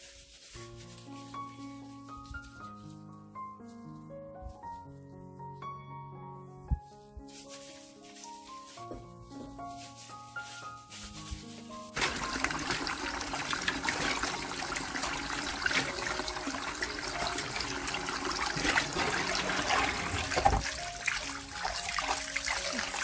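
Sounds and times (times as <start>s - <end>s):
tap water running into bowl: 12.0s - 23.0s
water splashing in bowl: 12.0s - 23.0s.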